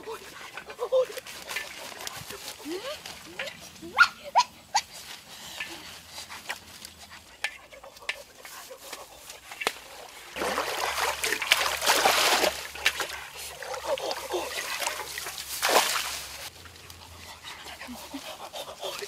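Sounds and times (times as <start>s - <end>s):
water splashing and sloshing: 0.0s - 3.9s, 8.2s - 19.0s.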